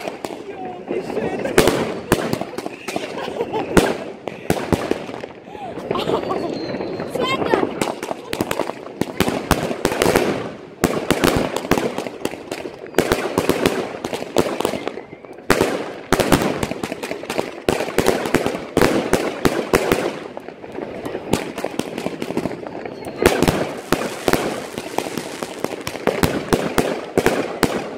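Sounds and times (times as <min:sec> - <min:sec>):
fireworks bangs and crackling: 0:00.0 - 0:27.9.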